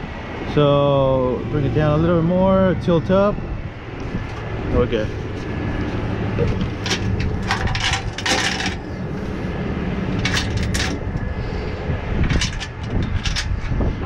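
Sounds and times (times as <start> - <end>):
tow truck engine running: 0.0 - 14.0
tow chains clinking and rattling: 6.2 - 9.2, 10.1 - 11.2, 12.2 - 13.8.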